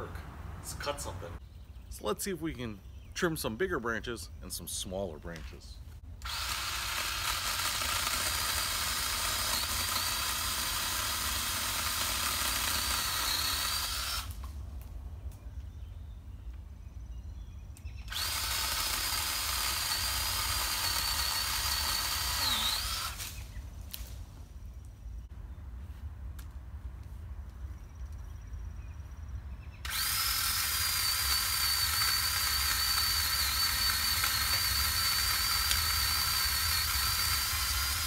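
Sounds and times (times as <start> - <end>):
electric pole saw whining: 6.2 - 14.5, 18.1 - 23.5, 29.8 - 38.0.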